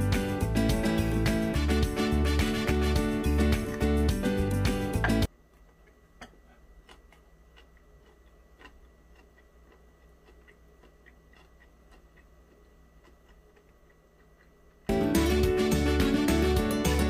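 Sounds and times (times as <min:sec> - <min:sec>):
background music: 0:00.0 - 0:05.3, 0:14.9 - 0:17.0.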